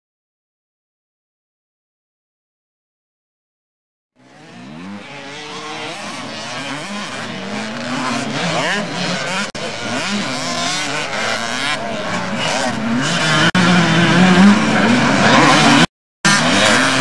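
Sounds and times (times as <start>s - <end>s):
motocross bike engines revving: 4.2s - 17.0s.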